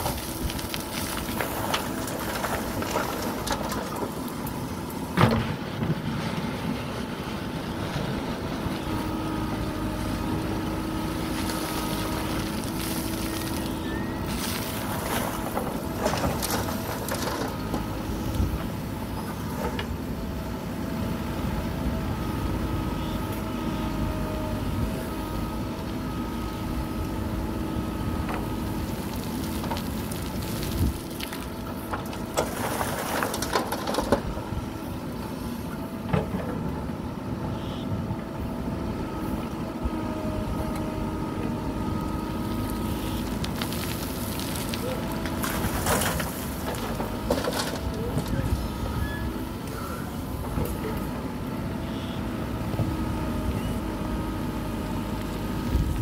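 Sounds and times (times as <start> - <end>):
gravel pouring into steel truck bed: 0.0 - 4.4, 11.2 - 18.1, 28.6 - 34.2, 42.5 - 49.2
diesel engine running: 0.0 - 56.0.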